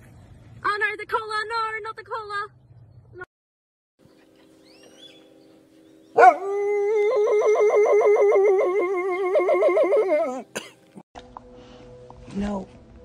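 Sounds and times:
dog howling: 6.2s - 10.5s.

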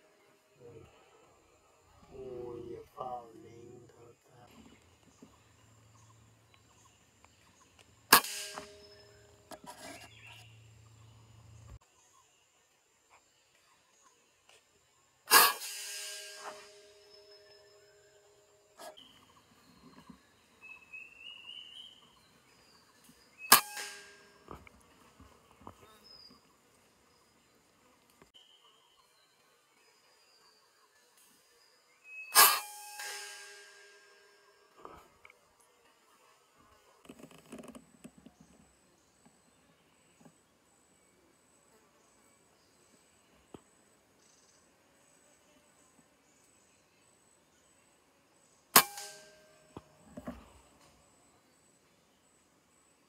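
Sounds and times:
insect chirping: 0.0s - 12.6s
air rifle shot: 8.1s - 9.0s, 15.3s - 17.2s, 23.5s - 24.2s, 32.4s - 34.0s, 48.8s - 49.5s.

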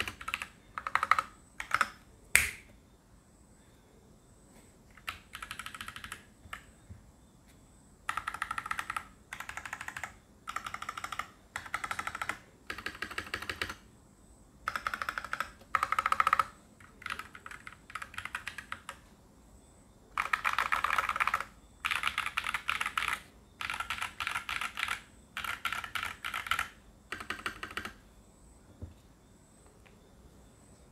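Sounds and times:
mechanical keyboard typing: 0.0s - 2.0s, 4.9s - 6.7s, 8.0s - 13.8s, 14.6s - 19.0s, 20.1s - 28.0s.

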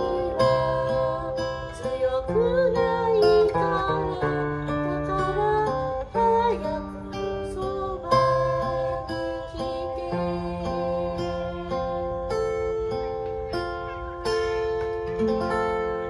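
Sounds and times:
woman singing: 0.0s - 12.4s
acoustic guitar strumming chords: 0.0s - 16.0s.

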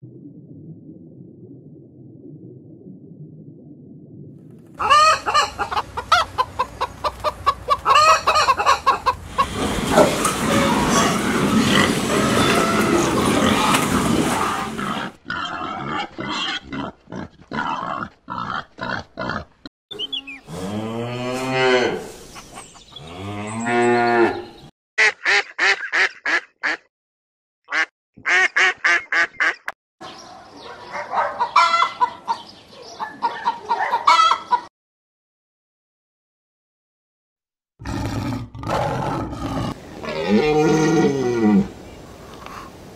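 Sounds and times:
chickens and rooster clucking: 4.8s - 14.2s, 30.1s - 34.7s.

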